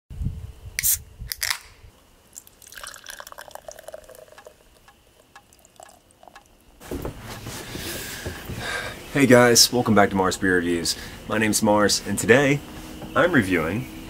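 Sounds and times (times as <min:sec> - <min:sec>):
can cracking open with hiss: 0:00.8 - 0:01.8
beer foam fizzing: 0:02.4 - 0:06.6
beer pouring into glass: 0:02.4 - 0:06.6.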